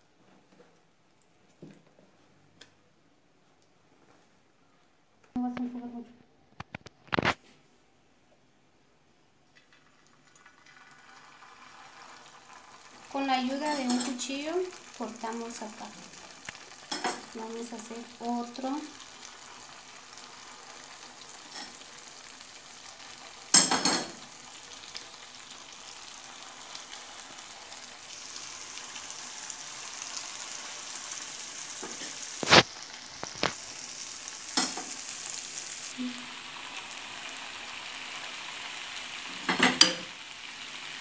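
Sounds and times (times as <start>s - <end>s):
dough sizzling in hot oil: 9.5s - 41.0s.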